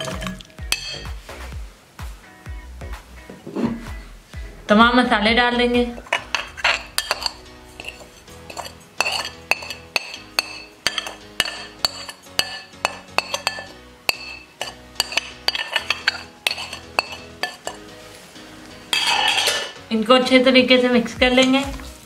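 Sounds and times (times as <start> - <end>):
metal spoon clinking on plate: 0.0 - 1.1, 6.0 - 17.9, 18.9 - 19.8
soft background music: 0.0 - 22.0.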